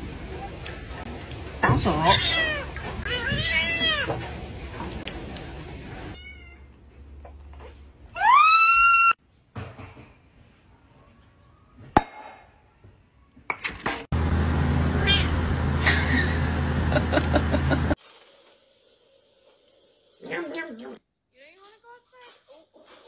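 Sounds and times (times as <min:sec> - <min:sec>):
cat meowing: 0:02.0 - 0:04.2.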